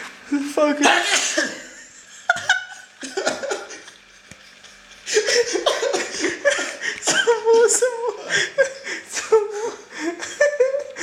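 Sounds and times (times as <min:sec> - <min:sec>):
man sneezing: 0:00.9 - 0:01.6
man laughing: 0:01.0 - 0:04.0, 0:05.1 - 0:11.0.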